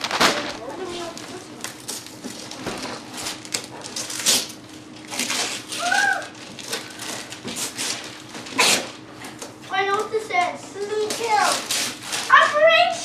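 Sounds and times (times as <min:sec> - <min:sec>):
wrapping paper tearing: 0:00.0 - 0:09.0, 0:11.0 - 0:12.9
child's high vocal sound: 0:05.8 - 0:06.3.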